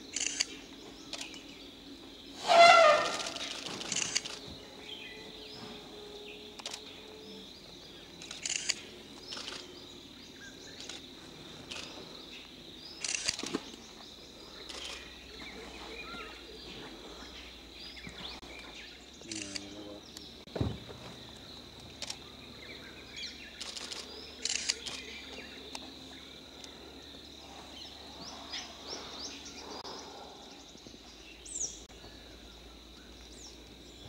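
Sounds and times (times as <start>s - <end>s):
elephant trumpeting: 2.4s - 4.2s.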